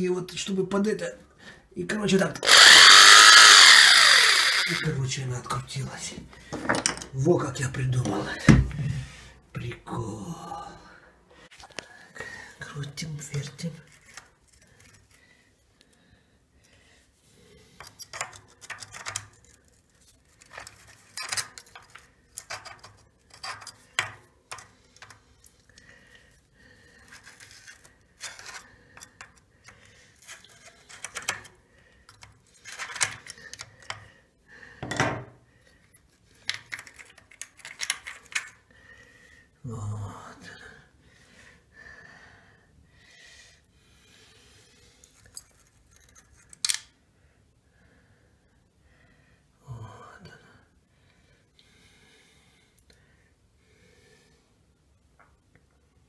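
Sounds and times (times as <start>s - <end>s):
bicycle freewheel ratchet clicking: 2.5s - 4.8s.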